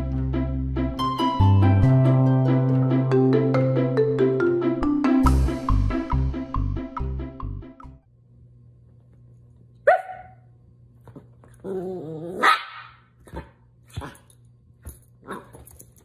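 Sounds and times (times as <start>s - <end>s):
small dog barking: 9.8s - 10.5s, 12.3s - 14.2s
dog growling: 11.6s - 12.5s.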